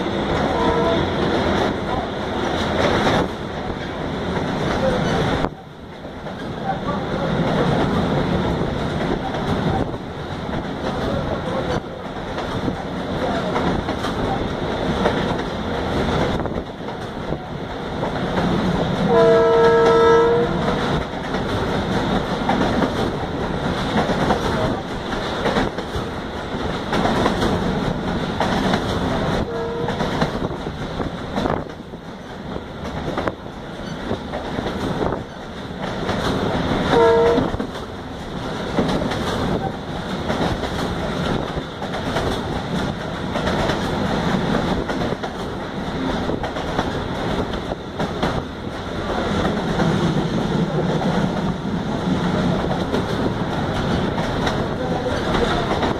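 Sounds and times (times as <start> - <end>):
train running rumble: 0.0 - 55.9
wheels clacking over rails: 0.0 - 55.9
train horn: 0.5 - 1.2, 19.1 - 20.8, 29.4 - 30.1, 36.8 - 37.6.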